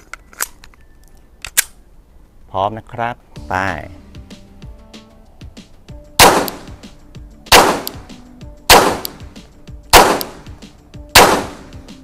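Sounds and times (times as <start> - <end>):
pistol shots: 6.2 - 6.8, 7.5 - 8.1, 8.7 - 11.8.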